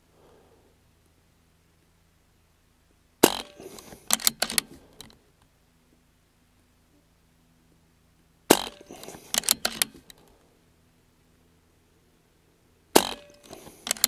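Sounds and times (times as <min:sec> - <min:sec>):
air rifle shot: 0:03.2 - 0:05.0, 0:08.5 - 0:10.1, 0:13.0 - 0:14.0
mechanical clicks of rifle action: 0:03.2 - 0:05.2, 0:08.5 - 0:10.3, 0:13.0 - 0:14.0.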